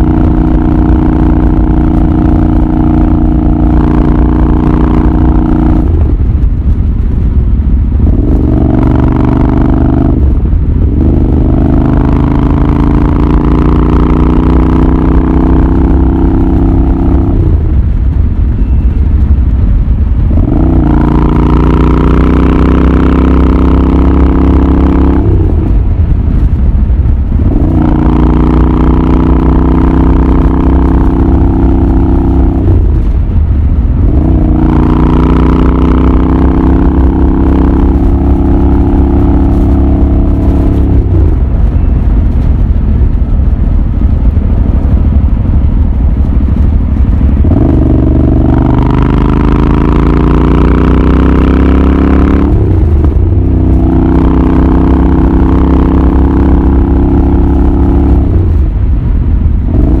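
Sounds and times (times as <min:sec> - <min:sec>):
motorcycle engine and exhaust: 0:00.0 - 1:00.0.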